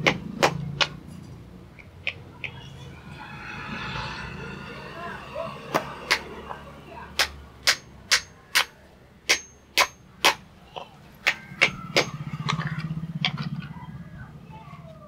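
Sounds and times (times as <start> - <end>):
hammer striking metal: 2.5 - 8.7, 9.3 - 10.0.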